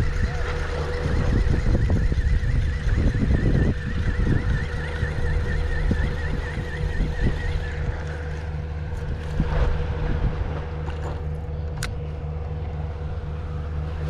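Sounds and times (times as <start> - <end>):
wavering high whistle: 0.0 - 9.2
low engine drone: 0.0 - 14.0.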